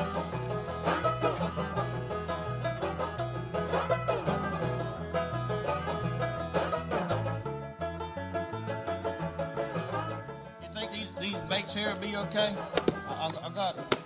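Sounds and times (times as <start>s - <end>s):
two-note bass line: 0.0s - 13.9s
fast-picked banjo: 0.0s - 14.0s.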